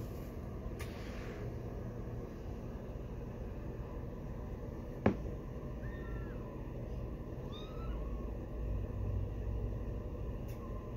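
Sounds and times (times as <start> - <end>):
kittens mewing: 5.7 - 6.7, 7.4 - 8.5.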